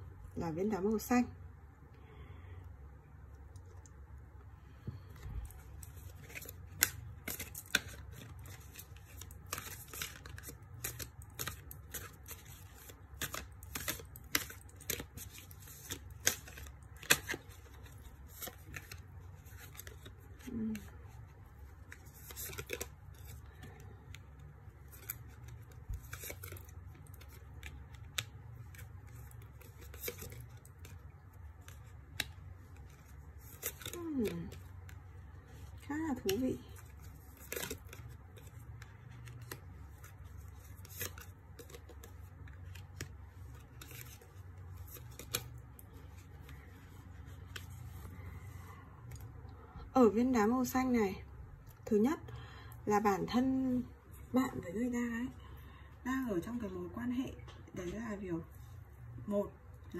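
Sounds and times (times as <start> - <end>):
cards shuffling and sliding: 5.0 - 35.6, 36.2 - 48.6.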